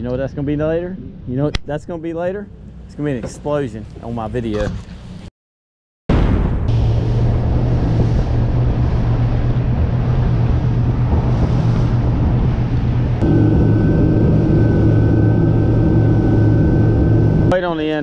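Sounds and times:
rushing wind and water: 6.6 - 17.7
outboard motors droning: 6.7 - 18.0
thin high steady tone: 13.2 - 17.7.

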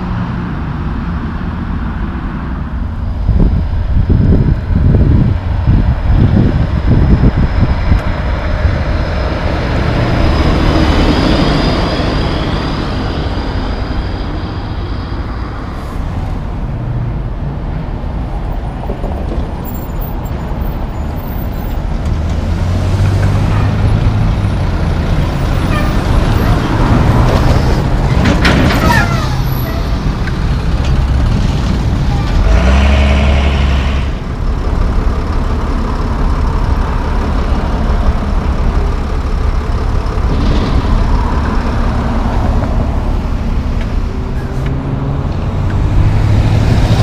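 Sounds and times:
diesel trucks passing: 0.0 - 47.0
road traffic: 0.0 - 47.0
wind buffeting microphone: 3.1 - 11.5.

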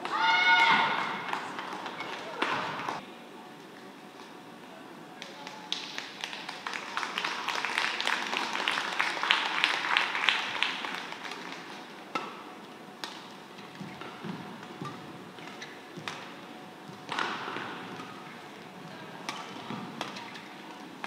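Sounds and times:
spectators clapping: 5.2 - 11.9.

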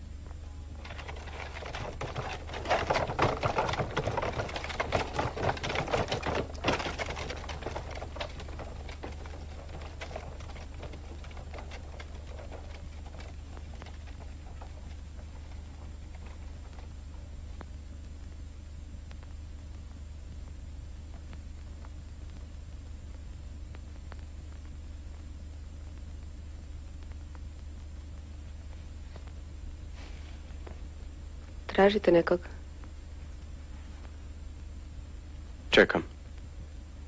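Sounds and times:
low mains hum: 0.0 - 37.0
clatter of hard knocks: 0.8 - 16.9.

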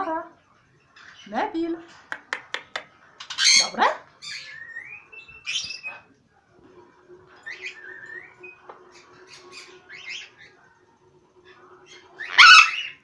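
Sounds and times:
parrots making scratchy calls: 2.4 - 4.6, 11.8 - 13.0.

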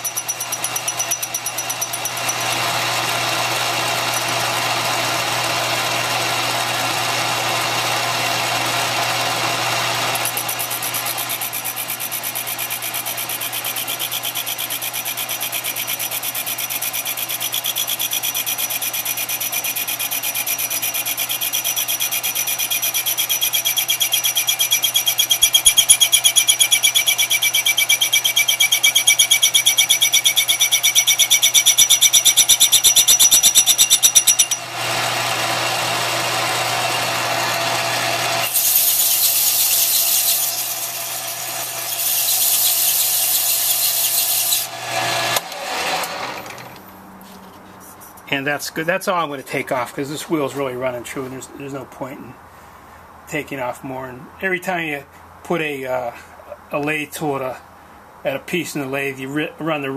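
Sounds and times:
metal lathe cutting with ringing tone: 0.0 - 46.6
rag rubbing on spinning wheel: 10.1 - 34.7, 38.4 - 40.8, 41.4 - 44.7.

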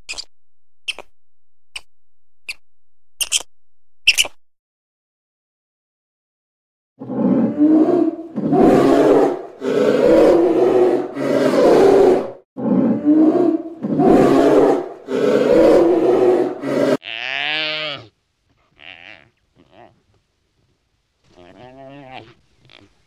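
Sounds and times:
polar bear growling: 7.0 - 17.0.

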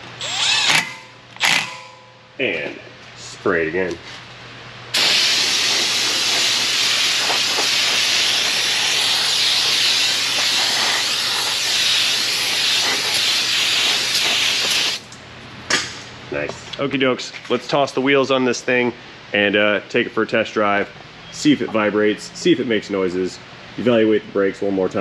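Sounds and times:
aerosol can spraying: 5.0 - 15.0.

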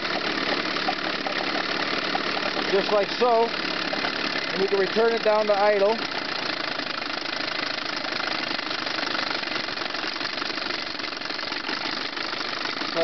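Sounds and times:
outboard motor idling: 0.0 - 13.0.

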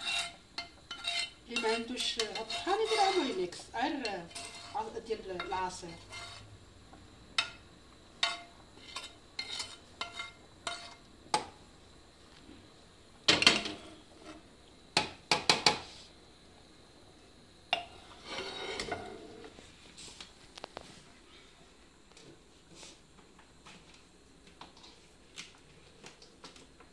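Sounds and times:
utensil scraping frying pan: 0.0 - 6.5, 8.2 - 11.5, 13.3 - 14.5, 17.8 - 19.6.

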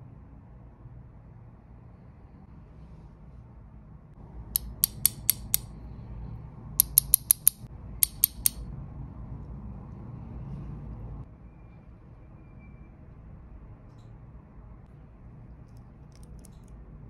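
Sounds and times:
watch pushers clicking: 4.6 - 5.7, 6.8 - 8.6, 15.7 - 16.7.

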